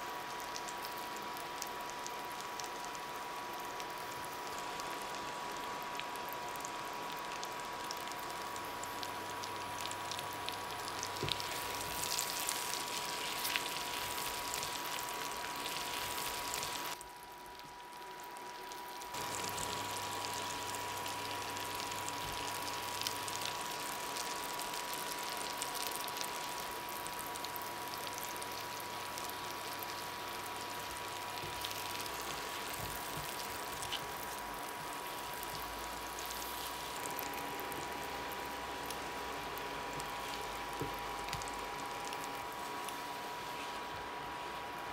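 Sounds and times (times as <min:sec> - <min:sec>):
butter and oil sizzling in a pan: 0:00.0 - 0:17.0, 0:17.6 - 0:44.9
small crackles: 0:00.1 - 0:44.9.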